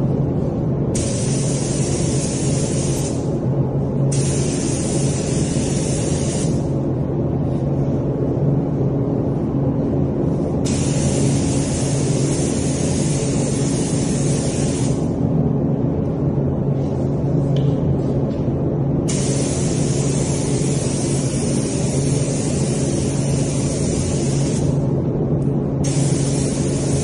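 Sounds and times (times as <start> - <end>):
steady low hum: 0.0 - 27.0
spray gun hissing: 1.0 - 3.3, 4.1 - 6.7, 10.6 - 15.1, 19.1 - 24.8, 25.8 - 27.0.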